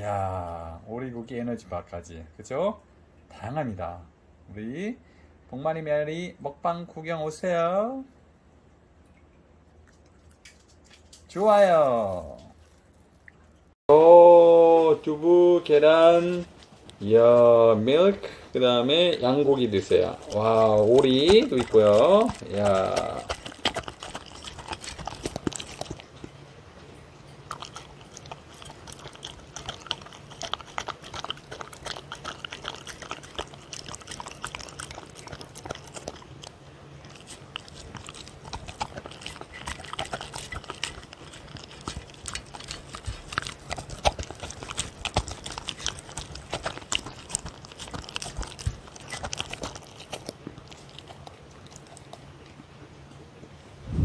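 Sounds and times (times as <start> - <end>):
dog chewing food: 15.6 - 53.2.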